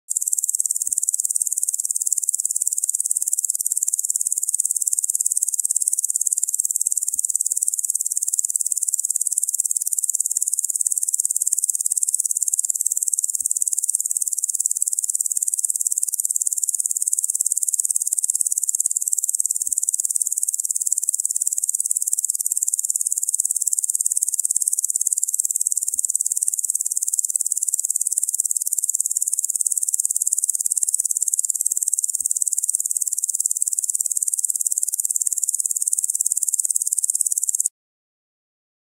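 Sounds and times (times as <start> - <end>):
insects chirring: 0.1 - 37.7.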